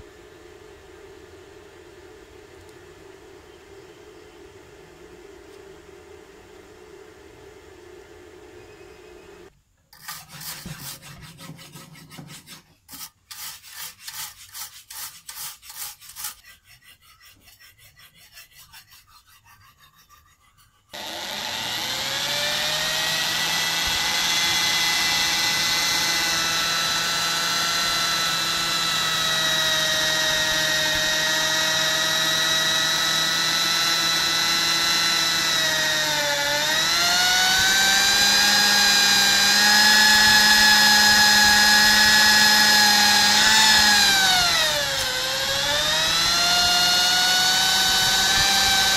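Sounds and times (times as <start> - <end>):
wire brush scrubbing steel: 9.9 - 23.0
electric drill boring into steel: 21.0 - 48.9.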